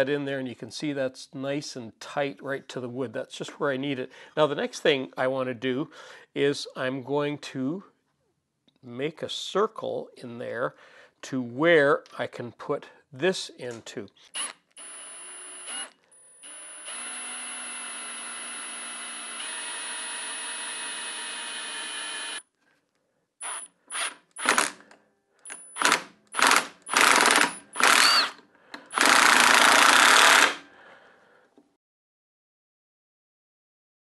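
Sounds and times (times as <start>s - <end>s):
cordless drill boring into wood: 14.4s - 22.4s, 23.4s - 24.8s, 25.5s - 30.6s.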